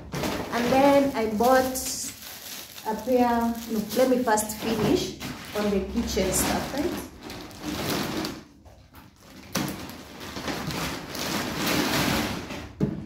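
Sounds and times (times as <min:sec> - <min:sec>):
bag rustling and crinkling: 0:00.0 - 0:12.8.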